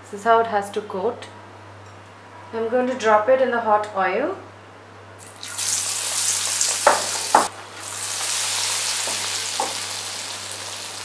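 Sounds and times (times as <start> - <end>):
food sizzling in hot oil: 5.2 - 11.0.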